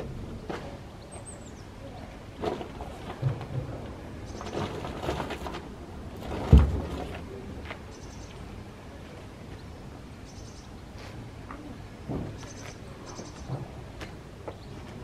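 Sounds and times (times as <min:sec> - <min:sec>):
heavy thump: 0:06.3 - 0:07.2, 0:12.1 - 0:12.4.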